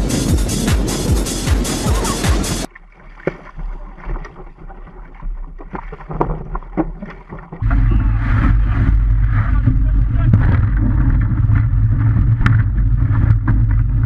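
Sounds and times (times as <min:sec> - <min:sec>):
music: 0:00.0 - 0:02.7
water rushing: 0:00.0 - 0:14.0
water splashing against hull: 0:00.0 - 0:14.0
wind rumble on microphone: 0:04.0 - 0:14.0.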